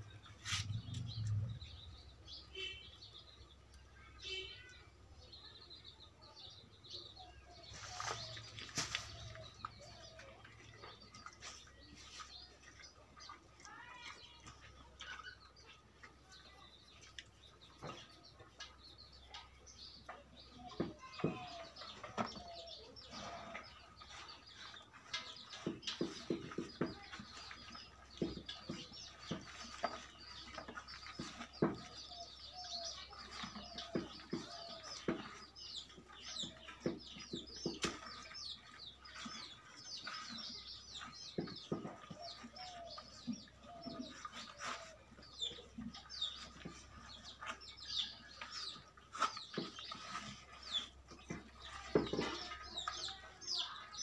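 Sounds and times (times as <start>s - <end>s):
small birds chirping: 0.0s - 54.0s
calf knocking rubber bucket: 25.6s - 32.2s, 49.1s - 53.0s.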